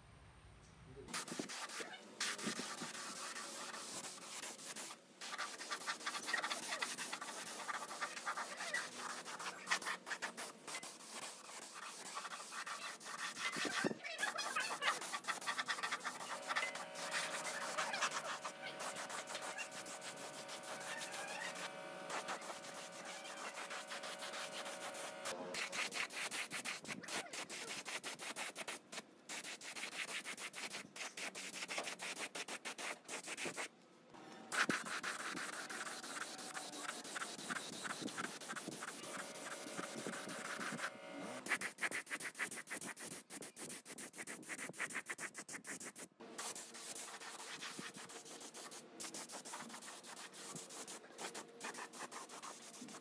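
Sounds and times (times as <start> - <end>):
paint spray gun hissing: 14.9 - 26.2, 34.5 - 41.7, 46.4 - 53.0.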